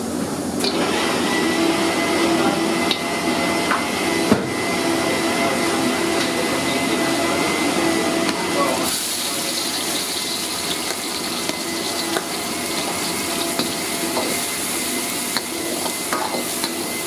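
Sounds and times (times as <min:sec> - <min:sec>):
stove burner rushing: 0:05.6 - 0:17.0.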